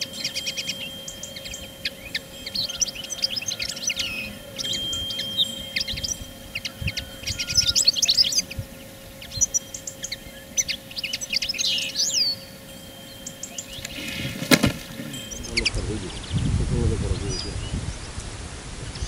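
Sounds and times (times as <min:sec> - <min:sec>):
small songbirds chirping: 0:00.0 - 0:19.0
bird net snapping shut: 0:13.8 - 0:15.1.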